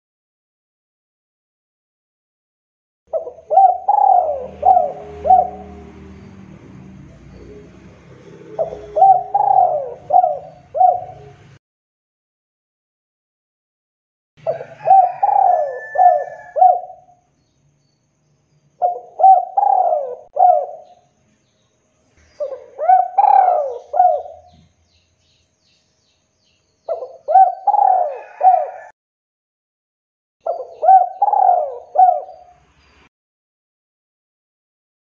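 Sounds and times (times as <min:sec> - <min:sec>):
dove cooing: 0:03.1 - 0:06.3, 0:07.0 - 0:11.6, 0:14.4 - 0:17.2, 0:18.8 - 0:21.0, 0:22.4 - 0:24.7, 0:26.9 - 0:28.9, 0:30.4 - 0:32.5.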